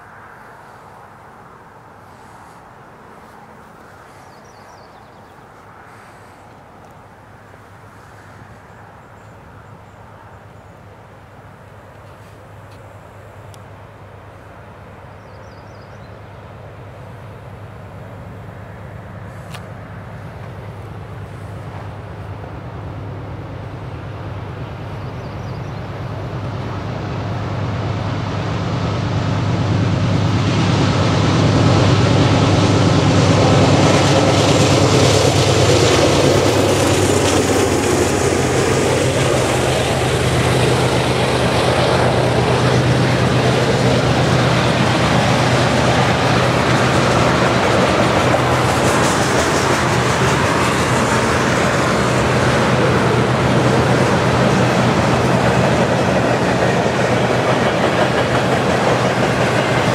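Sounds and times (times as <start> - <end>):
diesel locomotive engines: 0.0 - 59.9
steel wheels rumbling on rails: 19.9 - 59.9.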